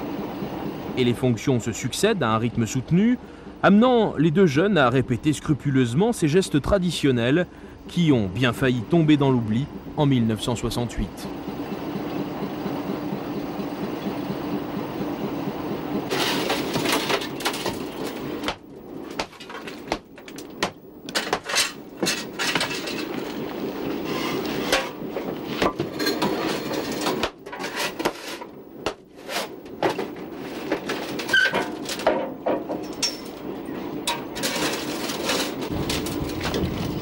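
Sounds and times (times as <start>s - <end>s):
steady rushing noise: 0.0s - 3.8s
coal and tools knocking on metal: 16.0s - 23.2s, 29.7s - 36.8s.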